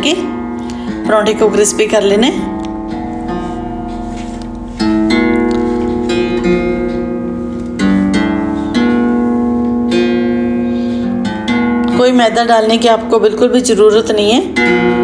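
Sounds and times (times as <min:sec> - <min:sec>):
plucked-string instrument chords: 0:00.0 - 0:15.0.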